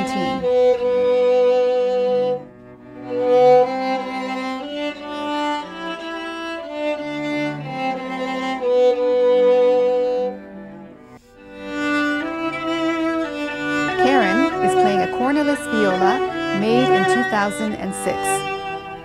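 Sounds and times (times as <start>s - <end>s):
sustained lower strings: 0.0s - 5.8s, 10.9s - 19.0s
bowed violin melody: 0.0s - 19.0s.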